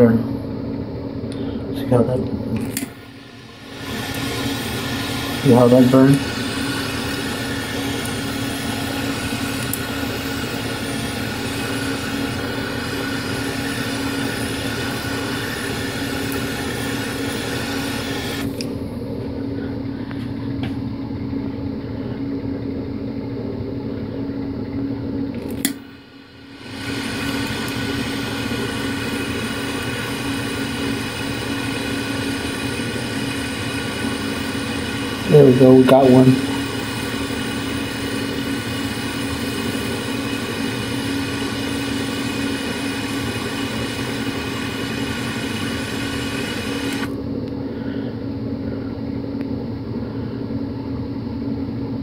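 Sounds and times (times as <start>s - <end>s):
torch flame hissing: 2.8s - 18.7s, 25.6s - 47.1s.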